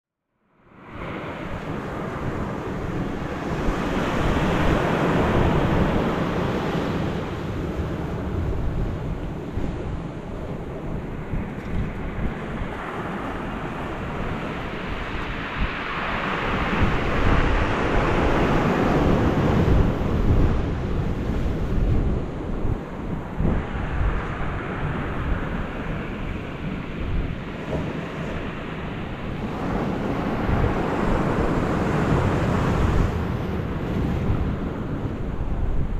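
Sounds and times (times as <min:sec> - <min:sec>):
wind buffeting microphone: 0:00.7 - 0:35.9.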